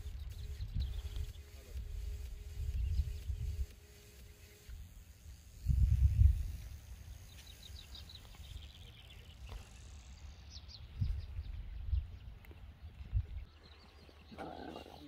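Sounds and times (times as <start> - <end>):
bird chirping: 0.0 - 15.0
wind buffeting microphone: 5.6 - 6.8, 10.8 - 13.6.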